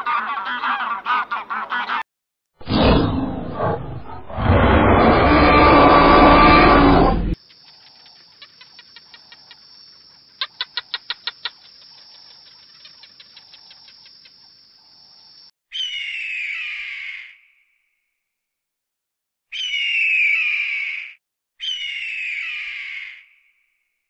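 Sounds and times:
dinosaur roar: 0:02.6 - 0:07.4
quick chirping clicks: 0:07.4 - 0:14.5.

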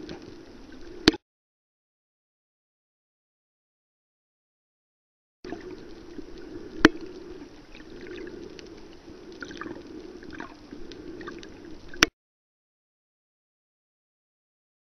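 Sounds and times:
underwater hum: 0:00.0 - 0:01.2, 0:05.5 - 0:12.1.

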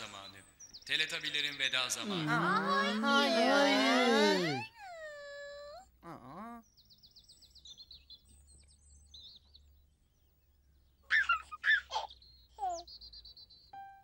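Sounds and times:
birds chirping and warbling: 0:06.6 - 0:13.8.

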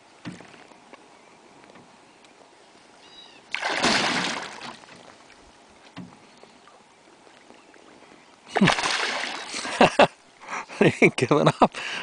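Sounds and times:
fish thrashing and splashing: 0:03.5 - 0:05.2, 0:08.5 - 0:09.8.

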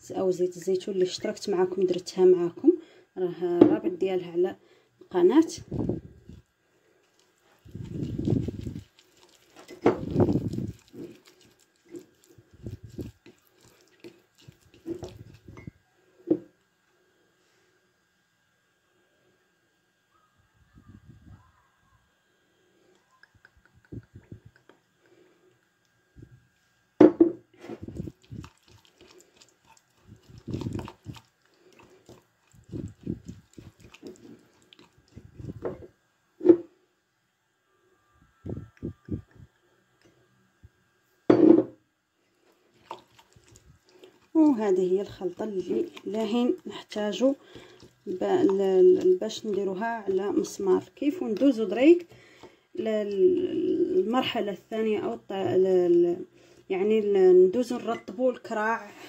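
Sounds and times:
spoon stirring paste in glass cup: 0:07.1 - 0:15.8, 0:28.0 - 0:35.8, 0:42.8 - 0:52.1.

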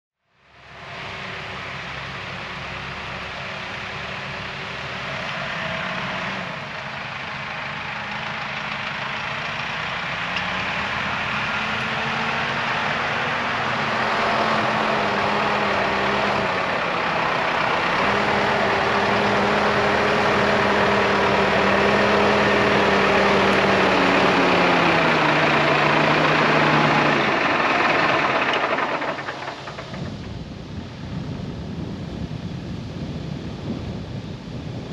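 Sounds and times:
diesel engine running: 0:00.4 - 0:34.9
wind noise: 0:28.0 - 0:34.9.

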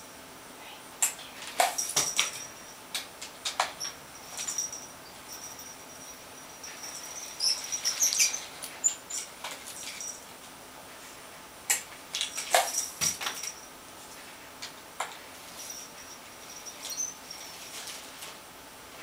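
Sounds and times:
small jingle bell jingling: 0:01.6 - 0:02.9, 0:03.6 - 0:10.3, 0:12.2 - 0:14.2, 0:15.4 - 0:18.1.

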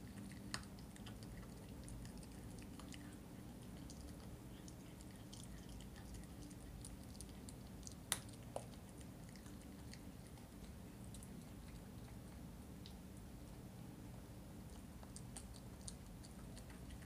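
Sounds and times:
puppy chewing wet: 0:00.0 - 0:13.7, 0:14.6 - 0:17.0
small clicks of chewing: 0:00.0 - 0:13.7, 0:14.6 - 0:17.0.

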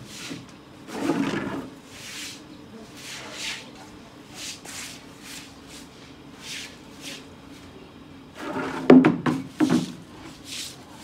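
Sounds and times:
broom sweeping water on concrete: 0:00.0 - 0:07.3, 0:09.5 - 0:11.0
loud knocks and clatter: 0:08.8 - 0:09.9.

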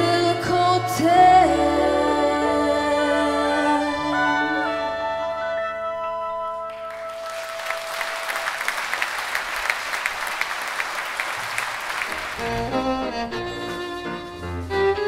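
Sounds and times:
audience applause: 0:06.8 - 0:12.9.

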